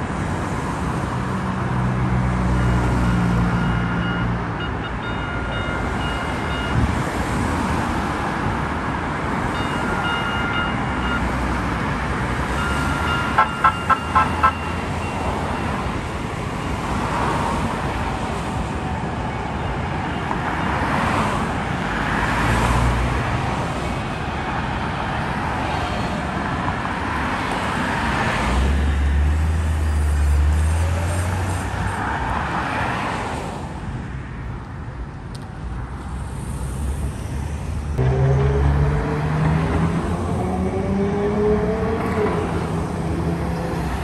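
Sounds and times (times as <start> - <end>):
heavy vehicle rumble: 35.0 - 44.0
cars swishing past: 35.8 - 44.0.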